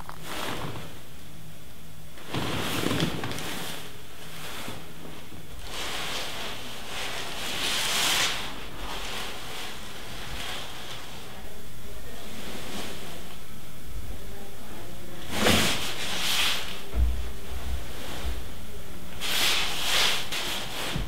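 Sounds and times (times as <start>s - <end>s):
soft rustling: 15.2s - 18.6s.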